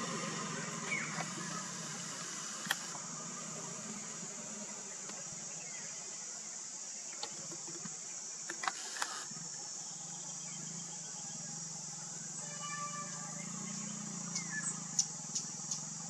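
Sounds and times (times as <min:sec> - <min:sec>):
insects shrilling: 0:00.0 - 0:16.0
low steady hum: 0:00.0 - 0:16.0
faint clicks: 0:02.2 - 0:03.0, 0:07.1 - 0:09.3.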